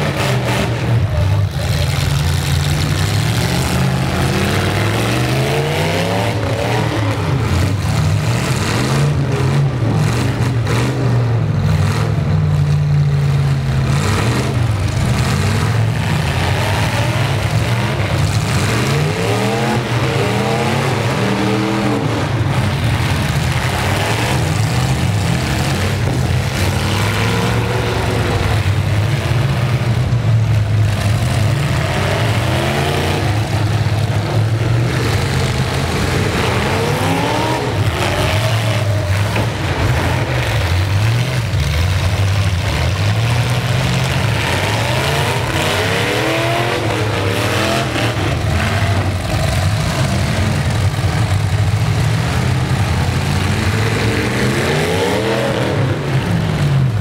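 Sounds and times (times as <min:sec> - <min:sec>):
truck engines revving: 0:00.0 - 0:57.0
trucks ramming: 0:00.0 - 0:57.0.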